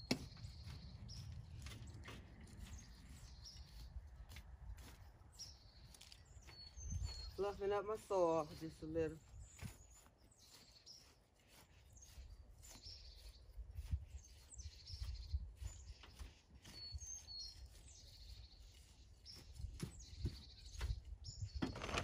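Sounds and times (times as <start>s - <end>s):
birds chirping: 0.0s - 22.0s
hand tool scraping soil: 14.1s - 22.0s.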